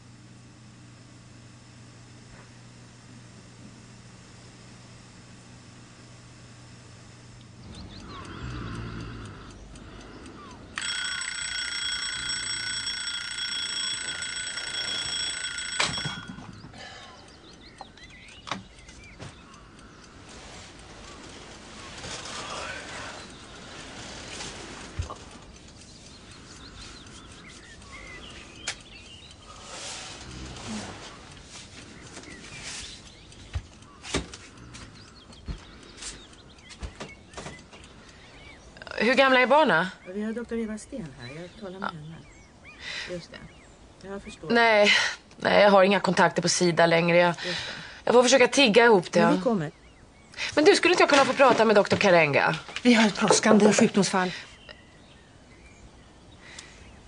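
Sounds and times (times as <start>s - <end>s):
small birds chirping: 7.3s - 10.8s, 16.5s - 57.0s
electronic alarm ringing: 10.4s - 19.2s.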